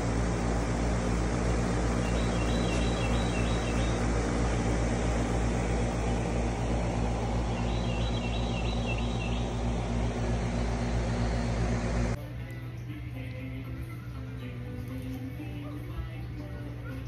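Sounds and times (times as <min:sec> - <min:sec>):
steady machine hum: 0:00.0 - 0:17.0
bird trilling: 0:02.0 - 0:04.0, 0:07.4 - 0:10.0.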